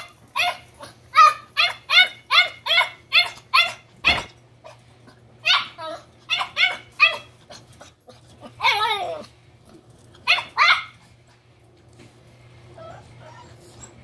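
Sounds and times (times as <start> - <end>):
puppy yipping: 0.0 - 4.3, 5.4 - 7.3, 10.3 - 11.0.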